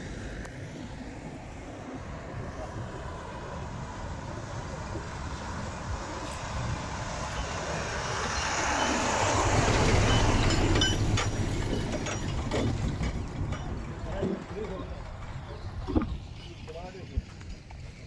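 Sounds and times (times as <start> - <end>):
diesel truck driving past: 0.0 - 18.0
sharp clicks and clinks: 9.8 - 14.8.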